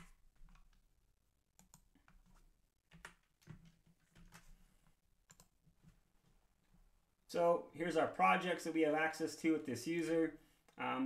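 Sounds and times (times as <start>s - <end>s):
computer keyboard keystrokes: 1.6s - 4.5s.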